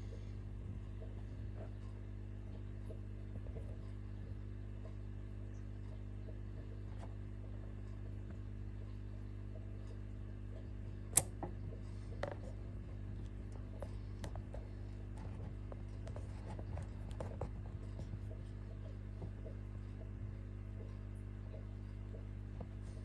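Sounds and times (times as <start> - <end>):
faint scratching and ticking: 10.6 - 23.0
sharp click: 11.2 - 11.4.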